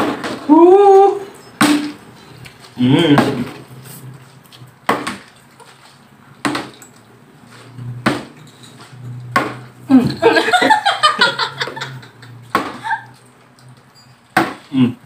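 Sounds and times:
person laughing: 9.9 - 13.2.

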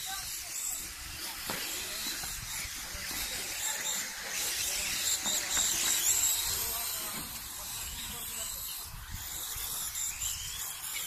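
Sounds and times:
toy car motor whine: 0.0 - 11.0.

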